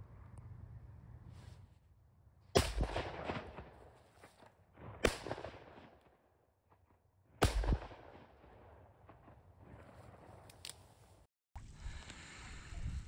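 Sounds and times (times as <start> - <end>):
shotgun blasts with echo: 2.5 - 4.0, 4.8 - 6.2, 7.4 - 9.7.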